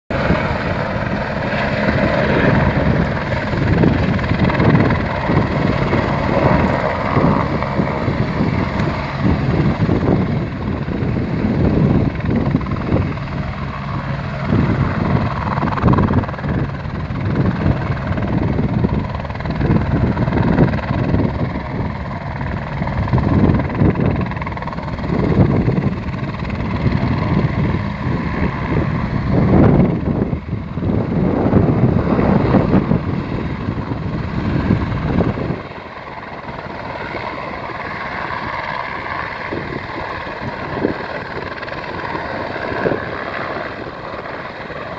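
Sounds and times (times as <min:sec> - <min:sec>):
helicopter rotor and engine: 0:00.1 - 0:44.9.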